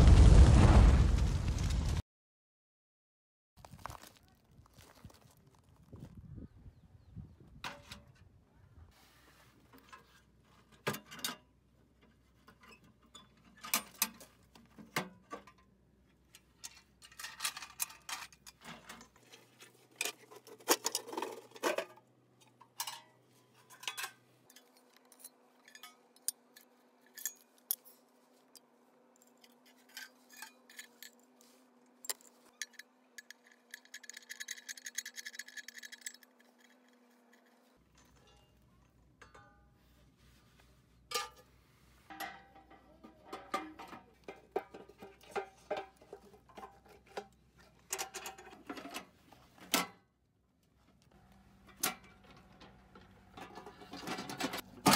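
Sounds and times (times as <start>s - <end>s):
steel parts clanking: 16.4s - 28.6s, 29.2s - 39.8s, 41.1s - 50.0s, 51.6s - 54.9s
metal pieces scraping rattle: 16.6s - 19.2s, 19.9s - 22.0s, 29.4s - 31.3s, 32.0s - 38.5s.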